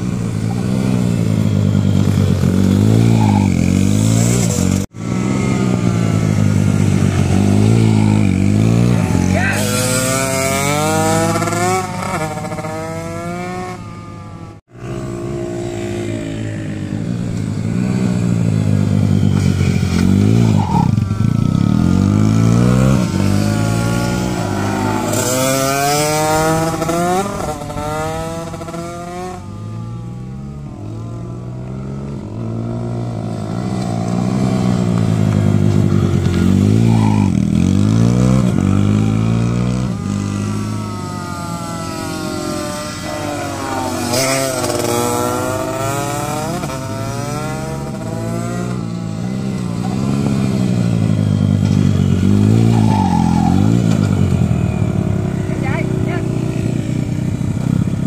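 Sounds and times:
mini motorcycle engines revving: 0:00.0 - 0:58.0.

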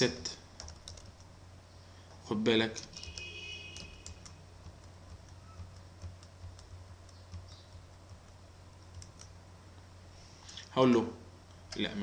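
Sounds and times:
low steady hum: 0:00.0 - 0:12.0
keyboard typing: 0:00.5 - 0:01.4, 0:02.1 - 0:09.4.

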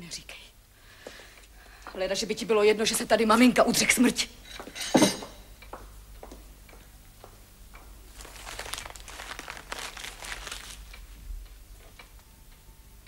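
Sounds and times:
faint rustling: 0:08.1 - 0:12.0.

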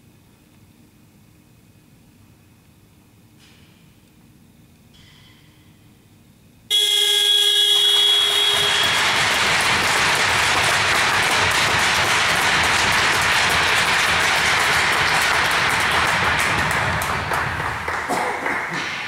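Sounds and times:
ice rink horn blast: 0:06.7 - 0:11.1
crowd cheering and clapping: 0:07.7 - 0:19.0.

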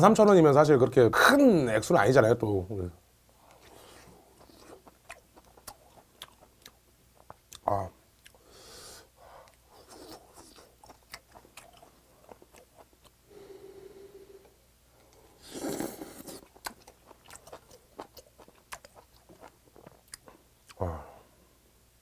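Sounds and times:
wet chewing: 0:03.4 - 0:08.4, 0:09.4 - 0:13.2, 0:15.6 - 0:20.8.

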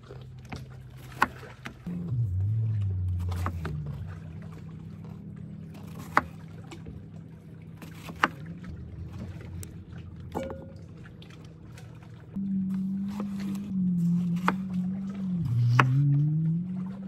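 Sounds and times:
low hum: 0:00.0 - 0:17.0
knife chopping on wooden board: 0:07.8 - 0:08.4.

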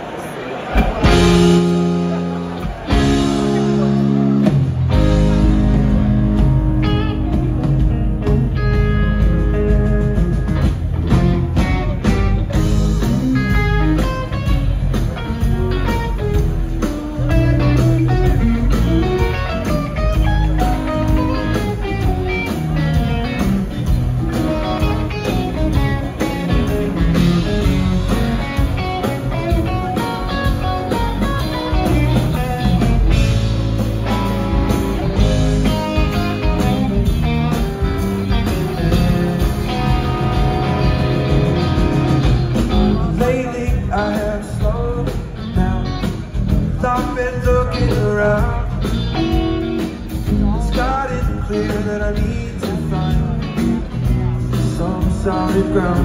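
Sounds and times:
electric guitar lines: 0:00.7 - 0:44.4
bass and drums: 0:00.7 - 0:56.0.

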